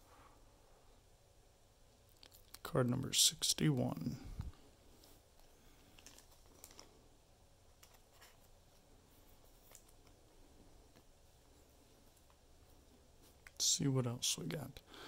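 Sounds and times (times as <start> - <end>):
trading cards being shuffled: 5.0 - 7.0.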